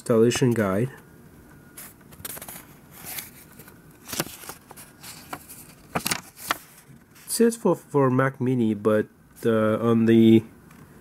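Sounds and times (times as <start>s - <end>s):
paper rustling and crackling: 1.8s - 7.4s.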